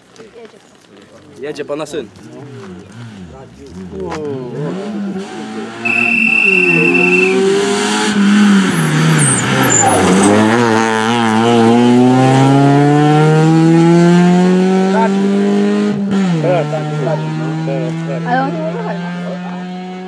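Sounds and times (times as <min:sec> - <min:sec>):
rally car engine revving: 0:02.1 - 0:20.0
steady high whistle: 0:05.8 - 0:07.8.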